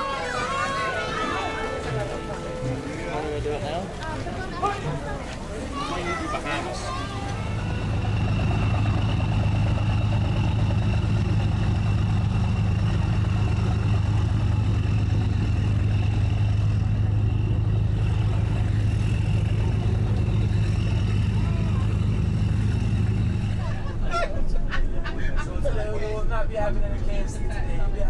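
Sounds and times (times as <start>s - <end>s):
engine humming steadily: 0.0s - 28.0s.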